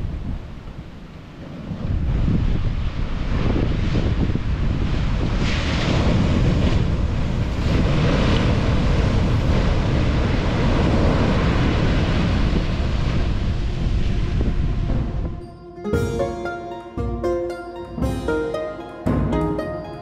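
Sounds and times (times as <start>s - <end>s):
wind on microphone: 0.0s - 15.4s
ocean surf breaking: 4.8s - 20.0s.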